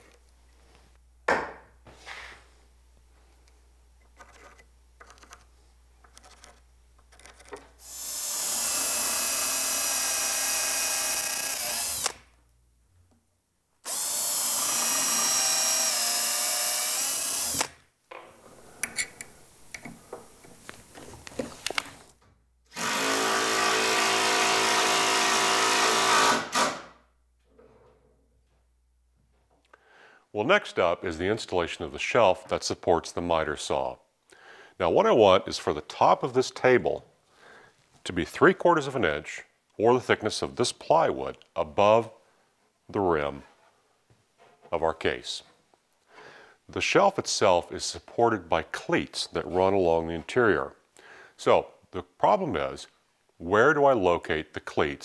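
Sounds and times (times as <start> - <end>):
cordless drill running: 7.8 - 12.2, 13.8 - 17.8, 22.7 - 26.8.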